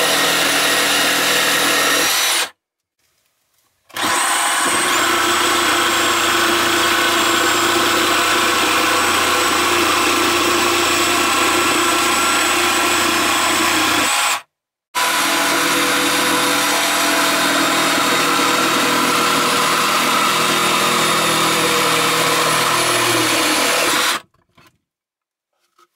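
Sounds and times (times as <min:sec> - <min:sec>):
jigsaw sawing wood: 0:00.0 - 0:02.6, 0:03.9 - 0:24.3.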